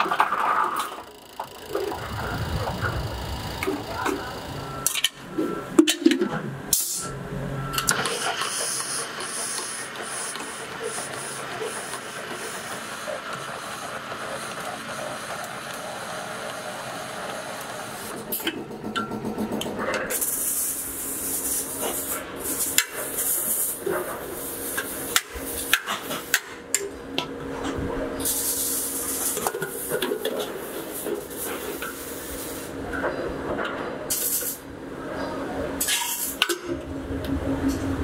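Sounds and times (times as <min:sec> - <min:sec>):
steady low hum: 0:00.8 - 0:07.8, 0:34.6 - 0:38.0.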